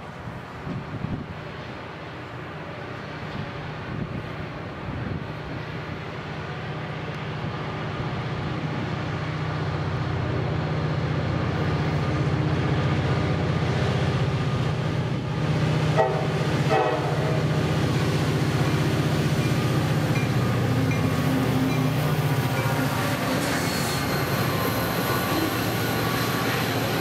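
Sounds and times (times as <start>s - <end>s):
diesel locomotives roaring: 0.0s - 27.0s
train horn blasts: 15.9s - 17.6s.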